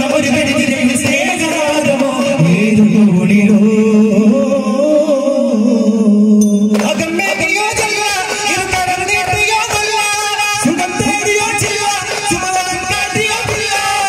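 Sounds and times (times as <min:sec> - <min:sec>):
man singing: 0:00.0 - 0:14.0
frame drums beating: 0:06.6 - 0:14.0.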